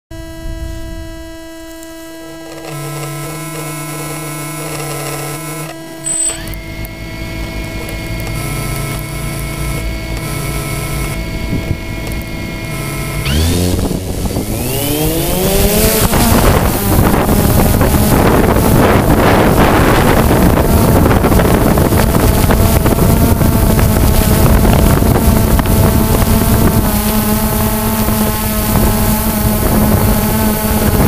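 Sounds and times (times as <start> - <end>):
drone motors whining: 0.1 - 31.0
steady electronic whine: 0.1 - 31.0
short high beep: 2.6 - 7.0.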